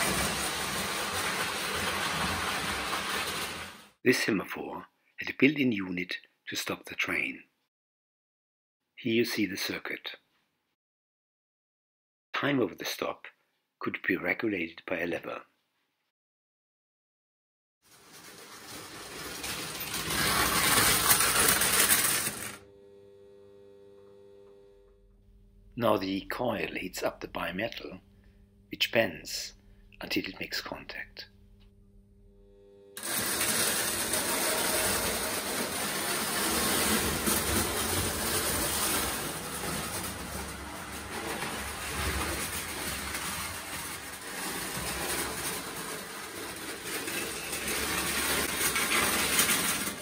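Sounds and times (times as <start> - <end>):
toy train clattering on track: 17.9 - 22.6, 33.0 - 50.0
electric motor rumble: 20.6 - 25.7, 31.4 - 46.7
steady hum: 22.6 - 30.4, 31.2 - 33.0.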